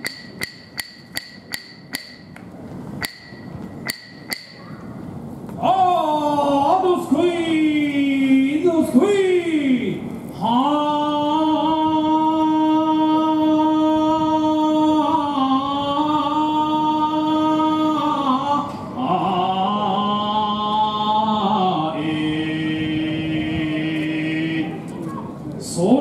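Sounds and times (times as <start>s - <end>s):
man singing unaccompanied: 5.6s - 24.8s.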